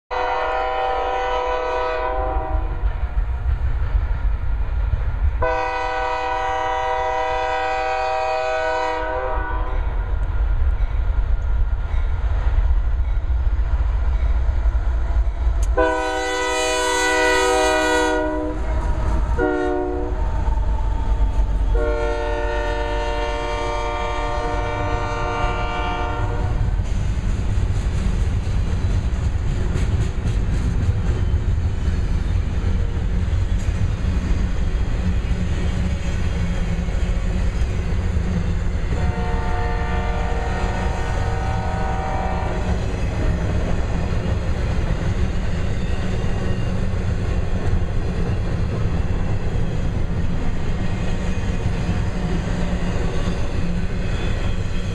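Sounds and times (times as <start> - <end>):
locomotive air horn blasts: 0.1 - 2.8, 5.4 - 9.9, 15.8 - 18.7, 19.4 - 20.2, 21.7 - 26.6, 38.9 - 42.7
diesel locomotive rumble: 0.1 - 54.9
train wheels on rails: 0.1 - 54.9.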